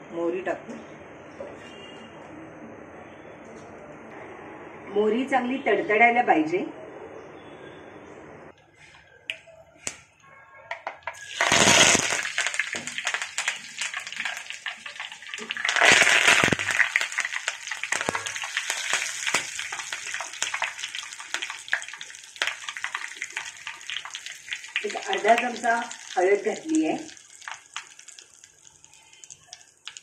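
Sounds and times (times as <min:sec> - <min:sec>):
mustard seeds popping in oil: 0:10.7 - 0:30.0
steady crackling oil: 0:11.1 - 0:30.0
loud sizzling hiss: 0:11.2 - 0:21.0.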